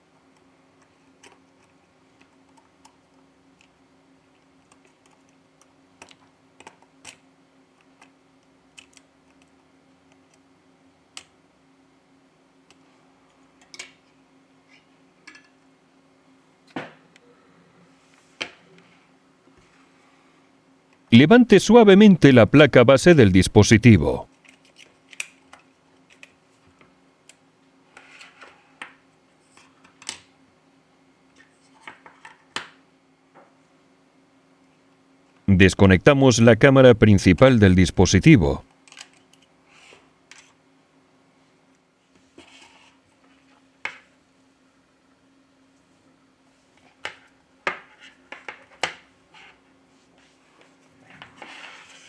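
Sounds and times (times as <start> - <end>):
faint steady hum: 0.0 - 24.6, 32.8 - 47.7.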